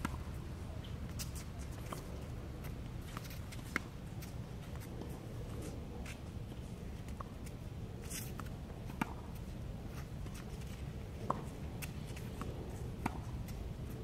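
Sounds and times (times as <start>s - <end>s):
racket hitting tennis ball: 8.1s - 13.6s.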